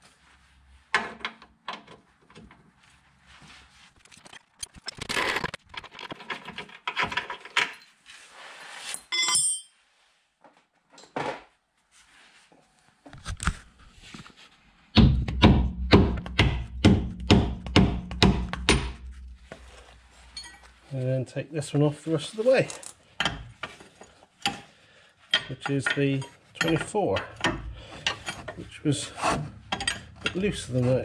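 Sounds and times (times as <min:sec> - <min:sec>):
short metallic ring: 0:09.1 - 0:09.8
hand tools clattering on metal: 0:25.3 - 0:28.6, 0:29.7 - 0:30.8.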